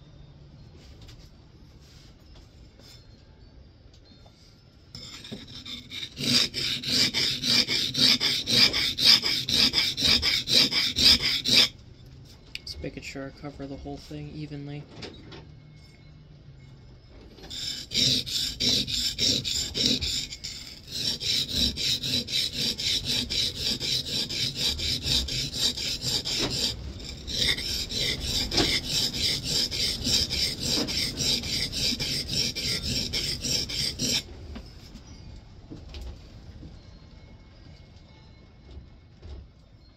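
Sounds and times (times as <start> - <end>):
plane iron scraping on oilstone: 5.0 - 11.8, 17.4 - 34.3.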